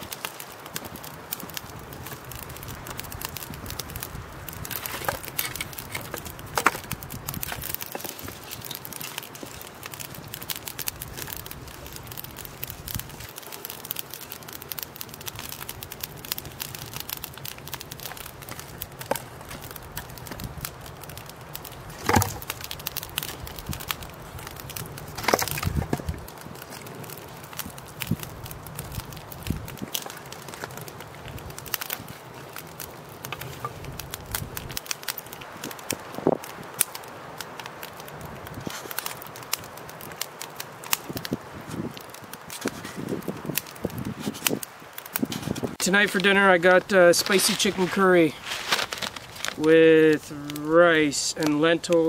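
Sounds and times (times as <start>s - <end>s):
campfire crackling: 0.0s - 52.0s
knocks in fire: 21.6s - 30.7s.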